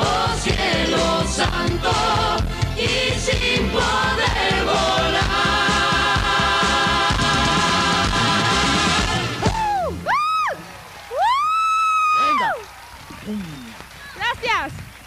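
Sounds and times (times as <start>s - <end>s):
several people singing together: 0.0s - 9.5s.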